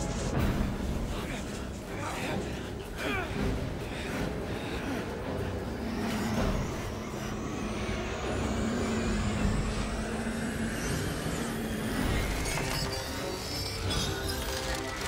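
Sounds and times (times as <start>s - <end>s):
low hum: 3.5s - 15.0s.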